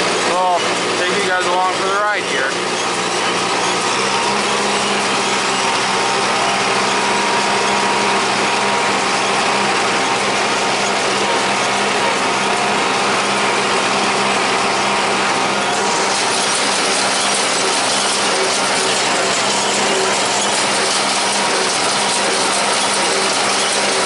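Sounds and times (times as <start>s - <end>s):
baler mechanism working: 0.0s - 24.0s
tractor engine running: 0.0s - 24.0s.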